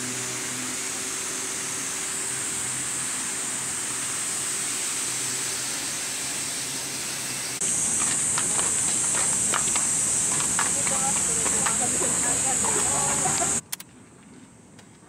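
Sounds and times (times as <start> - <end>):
fountain water splashing: 7.6 - 13.6.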